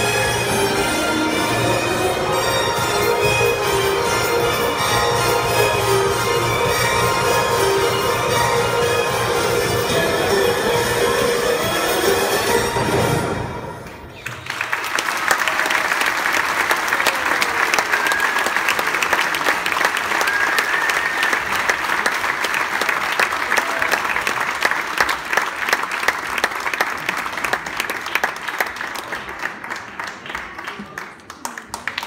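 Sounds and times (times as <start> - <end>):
dance music: 0.0 - 13.5
audience applauding: 13.8 - 32.0.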